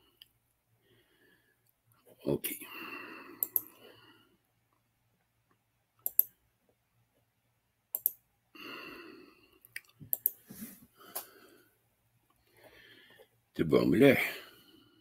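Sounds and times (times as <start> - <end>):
sharp isolated clicks: 3.4 - 3.7, 6.0 - 6.4, 7.9 - 8.2, 9.7 - 10.4.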